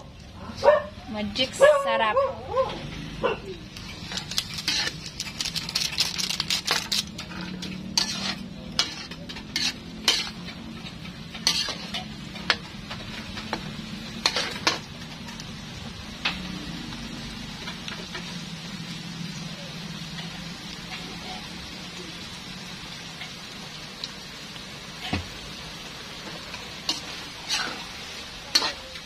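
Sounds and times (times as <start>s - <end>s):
food sizzling: 0.0s - 29.0s
metal spatula scraping a wok: 3.7s - 15.4s, 26.4s - 29.0s.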